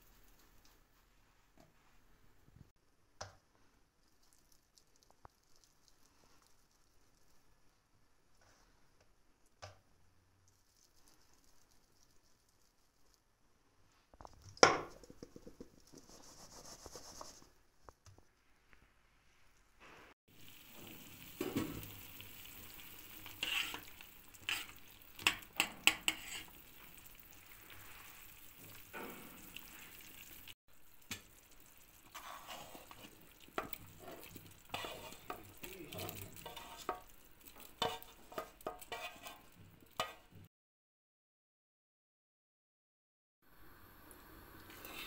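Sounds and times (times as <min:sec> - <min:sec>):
stew simmering and bubbling: 0:00.0 - 0:40.5, 0:43.5 - 0:45.0
meatballs splashing into broth: 0:20.4 - 0:40.4.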